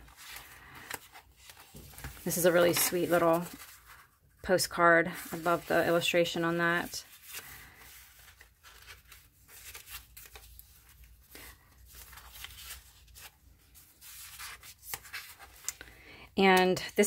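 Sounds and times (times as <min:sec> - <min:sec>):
page turning: 0:00.0 - 0:04.1, 0:06.8 - 0:15.9
paper rustling: 0:00.0 - 0:15.9.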